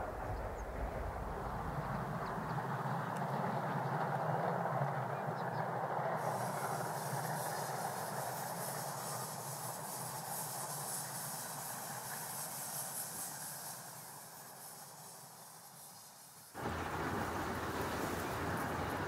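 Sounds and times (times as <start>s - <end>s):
steam locomotive running: 0.0s - 19.0s
steam hiss: 5.8s - 19.0s.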